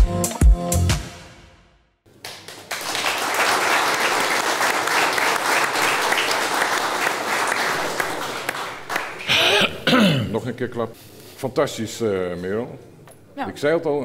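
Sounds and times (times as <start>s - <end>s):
hands clapping: 2.1s - 9.6s.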